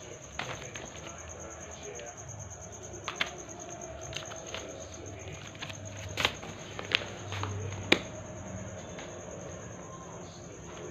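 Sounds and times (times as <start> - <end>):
paws scuffing on paper: 0.3 - 1.3, 3.0 - 8.1.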